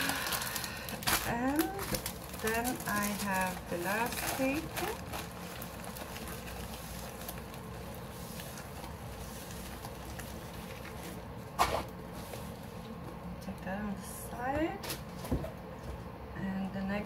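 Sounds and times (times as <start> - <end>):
plastic-covered canvas rustling: 0.0 - 13.0.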